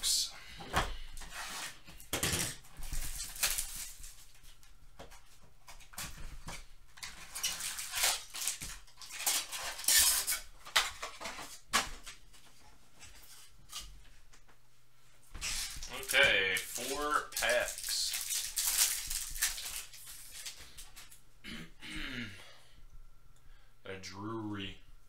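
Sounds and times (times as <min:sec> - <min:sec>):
foil packs crinkling: 0:01.2 - 0:04.6, 0:05.7 - 0:12.3, 0:15.4 - 0:21.2.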